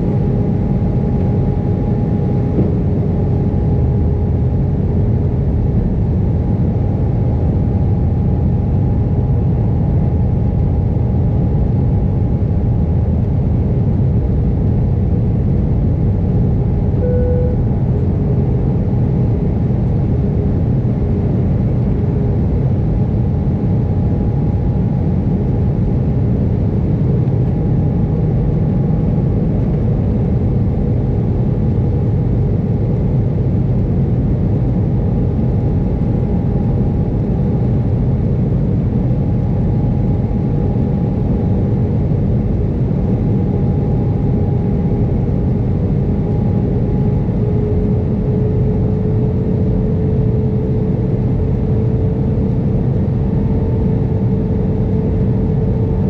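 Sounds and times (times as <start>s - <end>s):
airplane cabin engine drone: 0.0s - 56.0s
faint steady whine: 0.0s - 56.0s
short tone: 17.0s - 18.1s.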